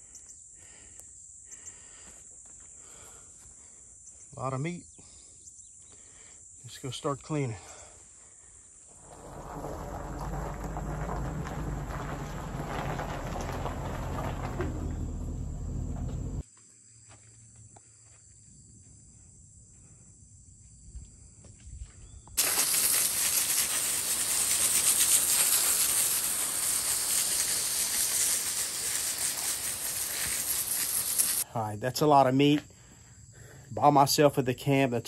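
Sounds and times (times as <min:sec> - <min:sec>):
hose spraying water on concrete: 0:09.0 - 0:15.3, 0:22.4 - 0:31.5
car engine low hum: 0:09.0 - 0:16.4.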